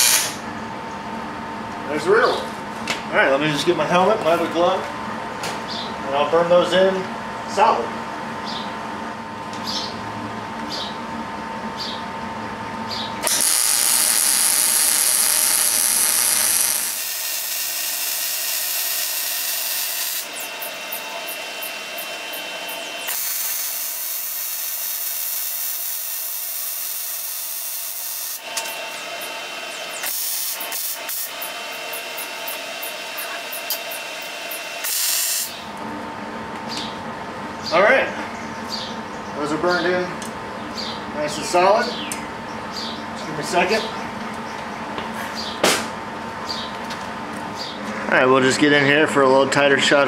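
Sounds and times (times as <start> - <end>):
arc welding crackling sizzle: 0.0 - 0.4, 13.2 - 35.8.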